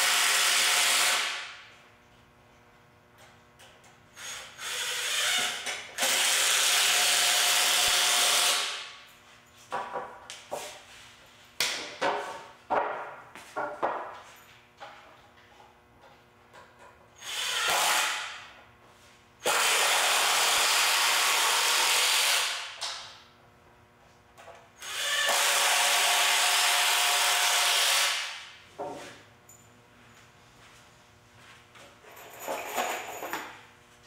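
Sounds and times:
impact driver driving screws: 4.2 - 8.8.

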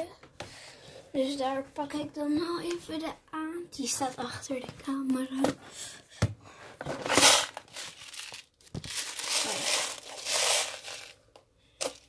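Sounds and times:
plastic rustling and crinkling: 6.8 - 12.0.

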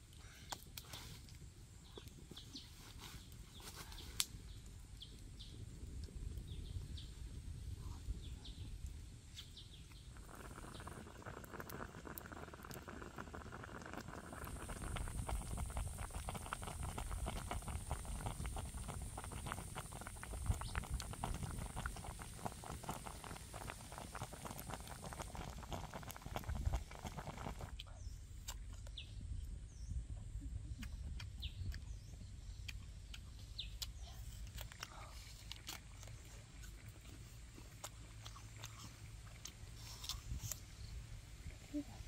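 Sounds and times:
wood fire crackling: 0.0 - 7.6, 8.6 - 27.8
broth bubbling: 9.7 - 28.6.

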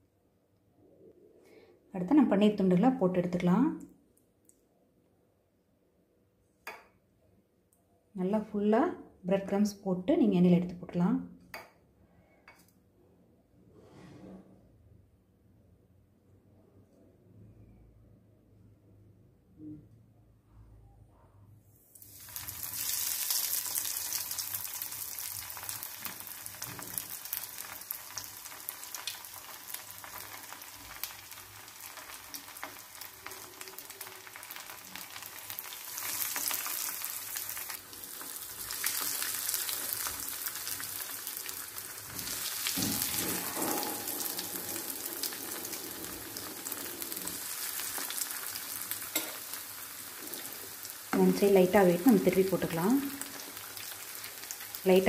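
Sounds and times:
food sizzling in hot oil: 21.9 - 55.0.

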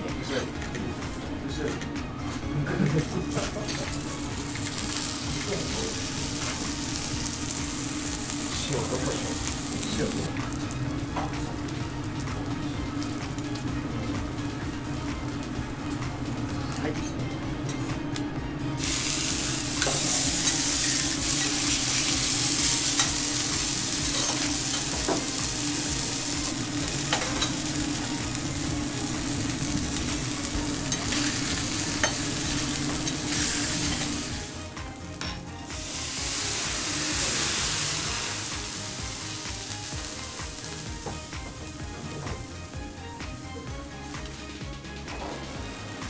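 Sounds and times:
steaks sizzling on a griddle: 3.7 - 10.8, 18.8 - 34.6, 35.8 - 43.4.

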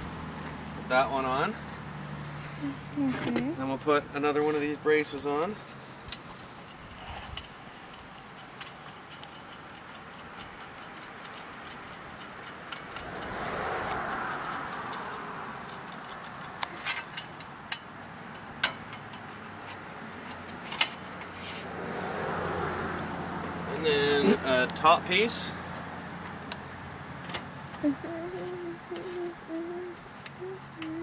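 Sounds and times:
vehicle passing: 0.0 - 5.6, 12.0 - 17.0, 21.0 - 31.0
sharp metal clicks and taps: 5.1 - 19.5.

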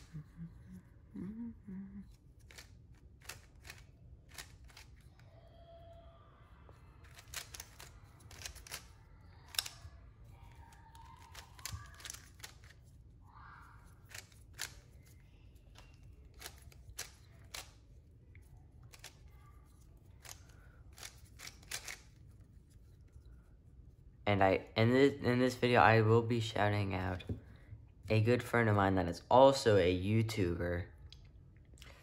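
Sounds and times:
puzzle cube clicking: 2.1 - 5.1, 7.0 - 8.9, 9.5 - 9.8, 11.0 - 12.9, 14.0 - 14.9, 15.8 - 17.8, 20.2 - 22.1.

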